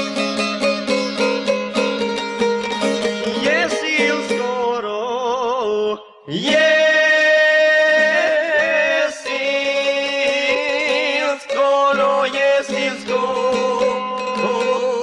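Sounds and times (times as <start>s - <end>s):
men singing folk song: 3.4s - 15.0s.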